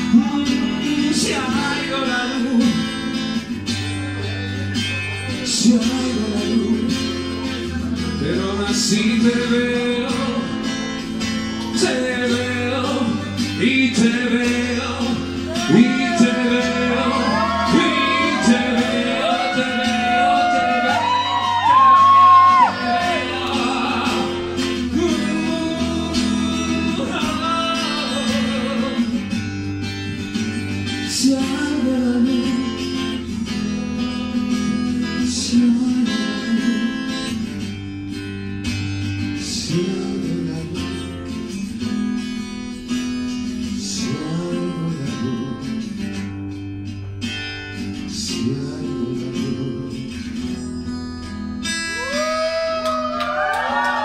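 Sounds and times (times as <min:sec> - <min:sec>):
acoustic guitar strummed and picked: 0:00.0 - 0:54.0
person singing: 0:11.6 - 0:29.4
audience whooping: 0:15.5 - 0:24.4, 0:51.8 - 0:54.0.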